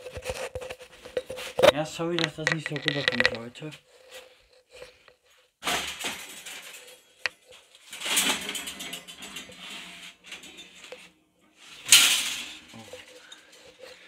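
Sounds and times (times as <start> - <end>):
camera handling rustling: 0.0 - 3.4.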